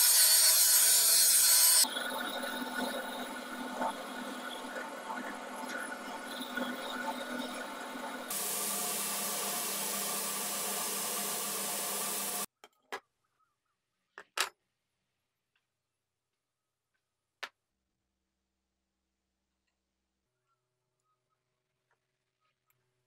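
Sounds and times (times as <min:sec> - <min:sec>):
metal lathe running: 0:00.0 - 0:12.5.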